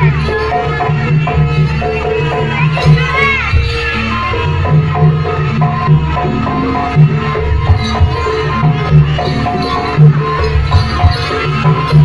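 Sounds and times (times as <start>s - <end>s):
steady drum beat: 0.0s - 12.0s.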